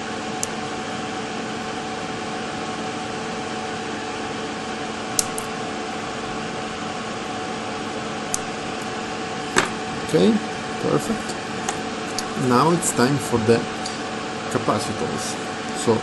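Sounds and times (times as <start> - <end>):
steady hum and hiss: 0.0 - 16.0
flush cutters snipping wire: 5.2 - 5.5.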